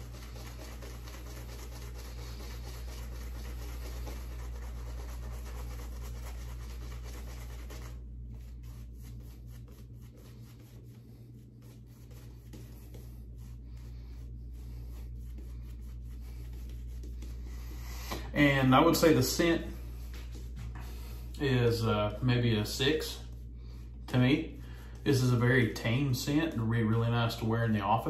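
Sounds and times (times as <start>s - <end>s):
shaving brush rubbing lather on skin: 0.0s - 28.0s.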